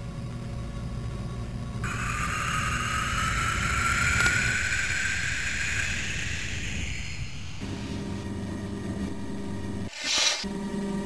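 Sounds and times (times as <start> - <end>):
jet whine rising in pitch: 1.8 - 9.9.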